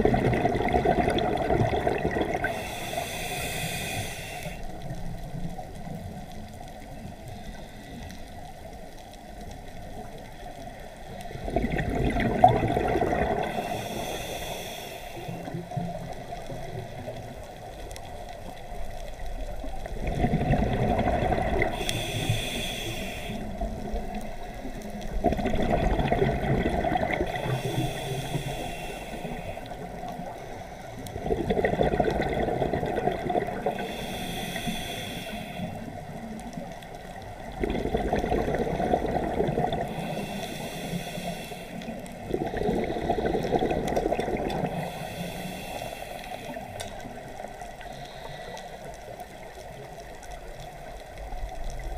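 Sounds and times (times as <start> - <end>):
exhaled bubbles rumbling: 0.0 - 2.7, 11.2 - 13.7, 19.1 - 22.2, 23.4 - 27.9, 31.0 - 34.0, 35.8 - 40.4, 41.9 - 45.0
regulator inhale hiss: 2.0 - 8.8, 13.3 - 19.8, 21.5 - 25.2, 27.0 - 31.2, 33.6 - 37.5, 39.7 - 44.0, 44.6 - 50.2.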